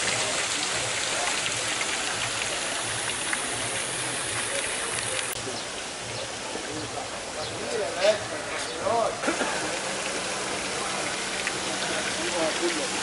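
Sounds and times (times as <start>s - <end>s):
fountain water splashing: 0.0s - 13.0s.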